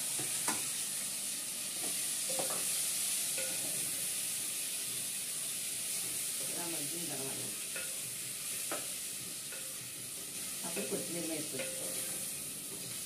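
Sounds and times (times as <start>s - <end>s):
oil sizzling: 0.0s - 13.0s.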